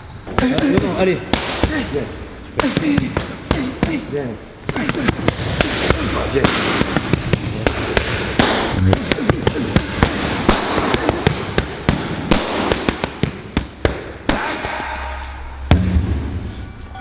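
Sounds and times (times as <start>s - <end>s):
gloves slapping focus pads: 4.7s - 14.8s.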